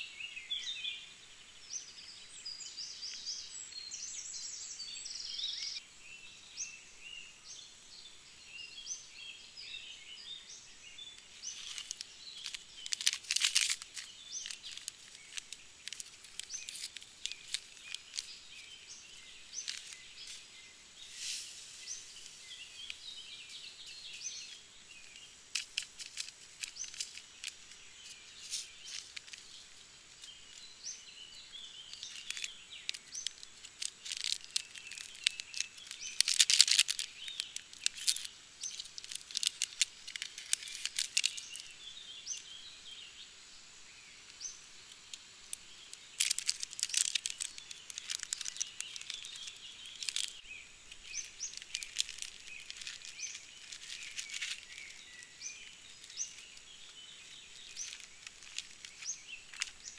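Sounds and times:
small birds chirping: 0.0 - 59.9
packaging crinkling: 11.2 - 30.7, 31.6 - 41.8, 44.9 - 59.9
paper wrapper tearing: 11.5 - 18.8, 32.0 - 41.5, 46.2 - 50.4.

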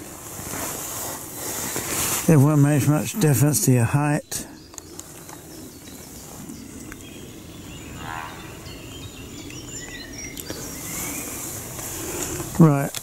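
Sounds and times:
small birds chirping: 1.4 - 13.0
buzzy bird call: 7.6 - 12.1.

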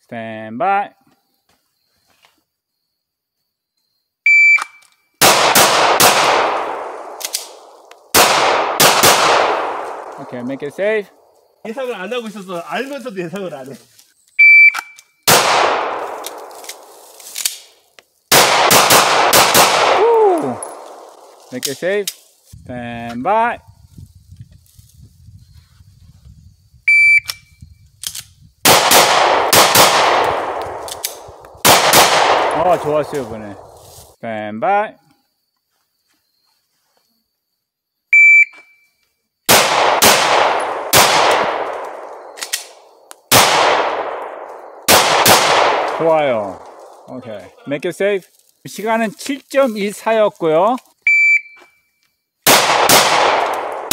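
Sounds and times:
shot timer beep: 4.3 - 4.8, 14.4 - 15.0, 26.9 - 27.5, 38.2 - 38.8, 51.1 - 51.7
fast string of handgun shots: 5.2 - 10.2, 15.3 - 16.1, 18.3 - 20.0, 28.6 - 30.9, 31.6 - 33.2, 39.5 - 41.8, 43.3 - 44.2, 44.8 - 46.1, 52.5 - 53.9
pistol clicks: 7.0 - 10.2, 30.0 - 32.3, 41.0 - 46.0
handgun shots with echo: 52.5 - 53.9.

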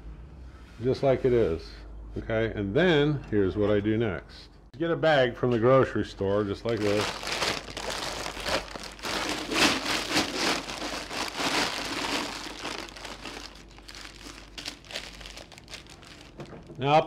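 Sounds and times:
plastic bag crinkling: 6.7 - 16.8.

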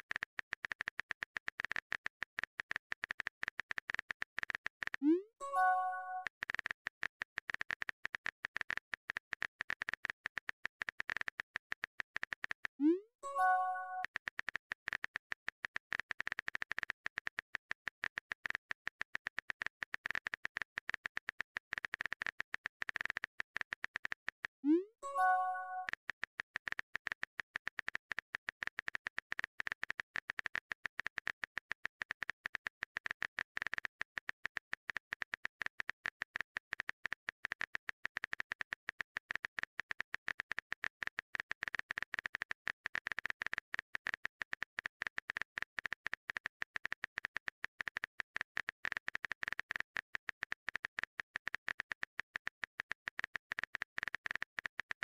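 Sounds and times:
phone keyboard typing clicks: 25.2 - 55.0.

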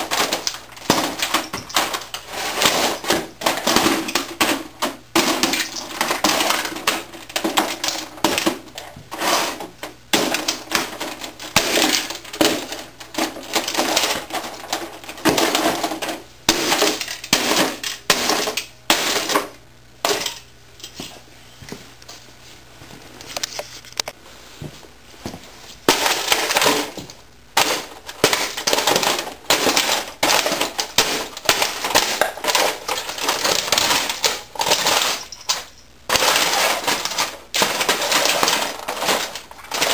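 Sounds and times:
plastic breaking and clattering: 0.0 - 20.4, 25.9 - 39.9.

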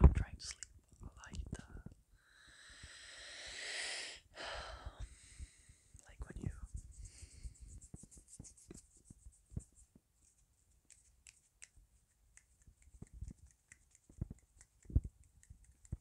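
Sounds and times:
finger snaps: 10.9 - 16.0
fingertip rubbing: 10.9 - 16.0.

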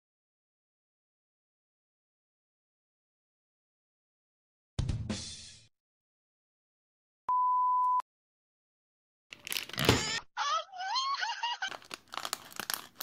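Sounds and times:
plastic packet crinkling: 9.4 - 9.9, 11.6 - 13.0.

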